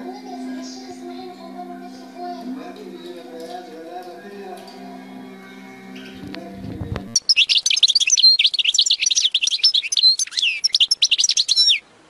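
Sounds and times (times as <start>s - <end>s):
bird twittering song: 0.0s - 2.4s, 5.9s - 11.8s.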